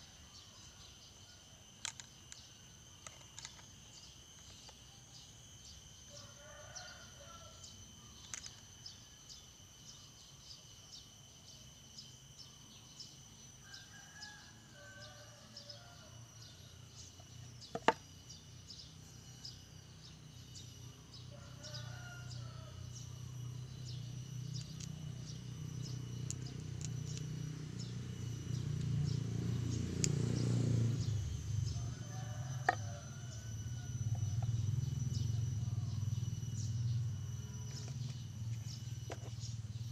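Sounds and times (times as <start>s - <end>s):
high insect trill: 0.0s - 39.9s
rooster crowing: 6.1s - 7.7s, 13.6s - 16.4s, 21.2s - 22.9s, 30.3s - 37.8s.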